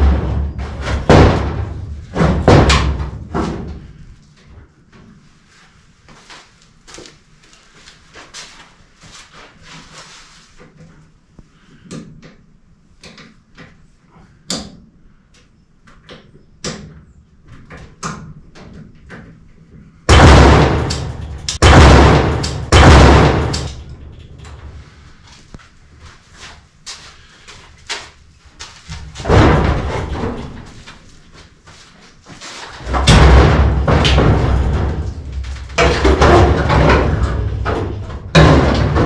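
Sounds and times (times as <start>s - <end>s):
loud metal clattering: 0.0s - 4.0s, 20.1s - 24.9s, 29.0s - 30.8s, 32.7s - 39.0s
sheet-metal clanks and thuds: 0.0s - 4.1s, 20.1s - 24.9s, 28.8s - 31.1s, 32.6s - 39.0s.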